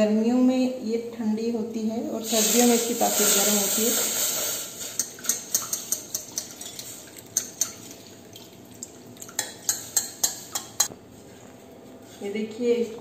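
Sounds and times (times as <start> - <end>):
steel utensils clinking on saucepan: 3.2 - 7.9, 9.2 - 10.9
liquid trickling: 4.2 - 10.0.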